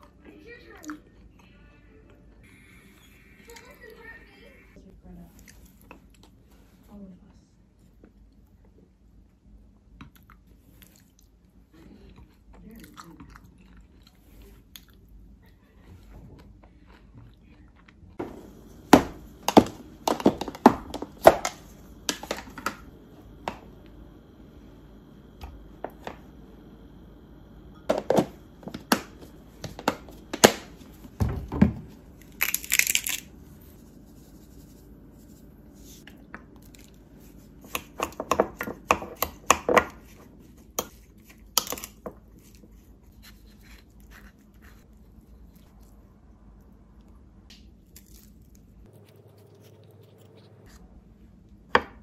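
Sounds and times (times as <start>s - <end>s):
containers being set down: 27.8s - 31.9s.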